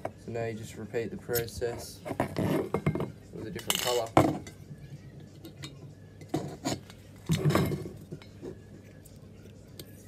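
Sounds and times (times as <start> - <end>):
metal cans clinking and knocking: 1.4 - 4.6, 5.5 - 8.4.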